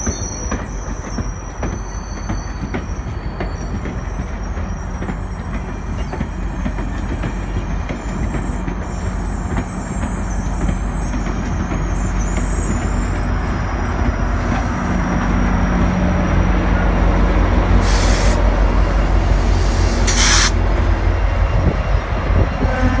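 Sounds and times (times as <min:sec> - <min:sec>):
diesel locomotive engine drone: 0:00.0 - 0:23.0
train wheels squealing on rails: 0:00.0 - 0:23.0
air hisses: 0:17.8 - 0:18.5, 0:19.4 - 0:20.6.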